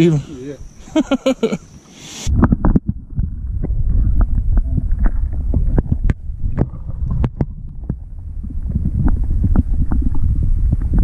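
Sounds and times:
muffled underwater rumble: 0:02.3 - 0:11.0
small underwater clicks and pops: 0:03.6 - 0:08.1.

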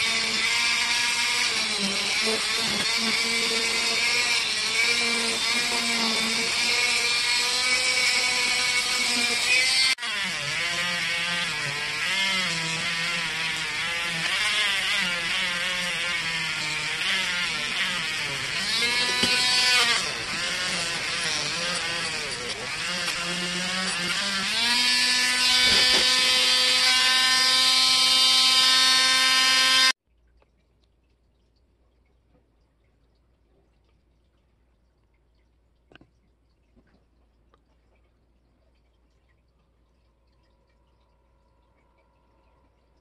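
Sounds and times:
power tool buffing wheel spinning: 0:00.0 - 0:30.0.

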